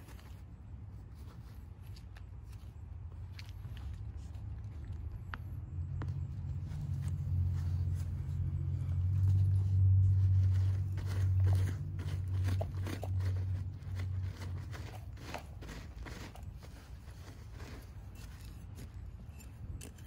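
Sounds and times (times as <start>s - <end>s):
trowel digging in soil: 0.0s - 2.8s, 6.7s - 20.0s
low rumble: 3.7s - 15.1s.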